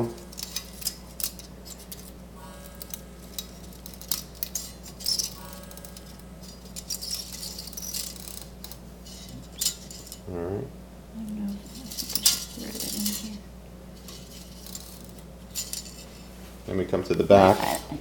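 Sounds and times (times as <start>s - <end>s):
film scraping: 0.0s - 10.2s, 11.5s - 16.5s
plastic film reel clicks and rattling: 0.1s - 10.2s.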